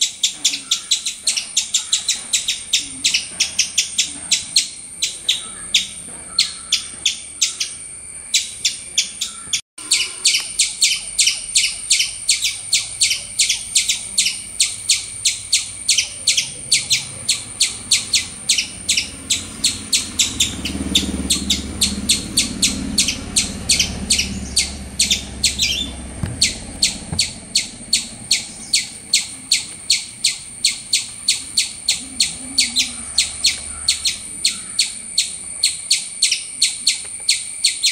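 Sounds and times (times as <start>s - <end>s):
high sharp chirping call: 0.0s - 37.9s
low rumble: 17.1s - 34.4s.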